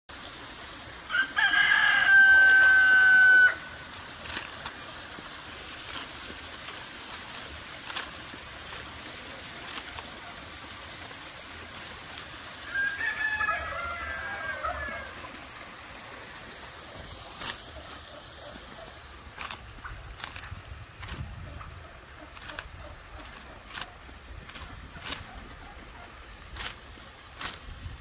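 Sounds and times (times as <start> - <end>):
rooster crowing: 1.1 - 3.8, 12.6 - 15.3.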